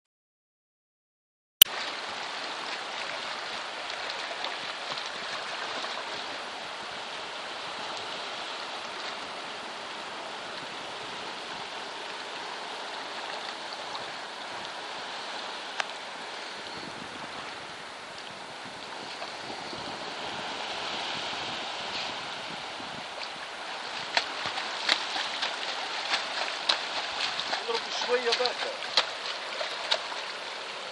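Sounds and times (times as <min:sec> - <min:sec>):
sea water splashing and lapping: 0:01.7 - 0:30.9.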